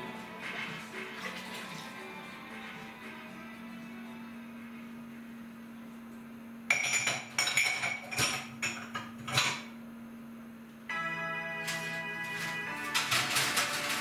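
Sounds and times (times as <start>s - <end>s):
music: 0.0s - 6.8s, 10.9s - 14.0s
crockery and cutlery clinking: 6.7s - 9.7s.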